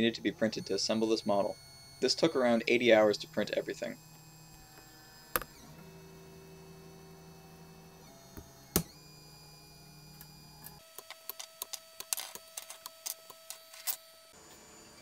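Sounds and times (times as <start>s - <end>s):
stepper motors humming and whining: 0.0s - 15.0s.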